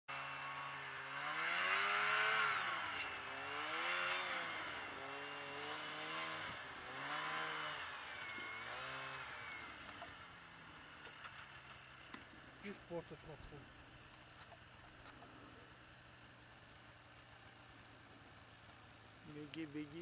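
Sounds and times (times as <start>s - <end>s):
engine revving up and down: 0.1s - 12.0s.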